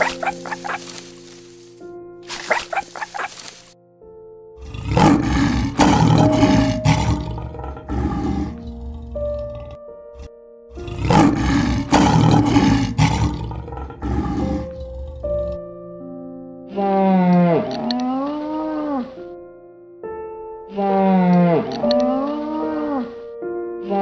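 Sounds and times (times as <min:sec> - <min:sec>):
background music: 0:00.0 - 0:24.0
lion roaring: 0:04.6 - 0:15.7.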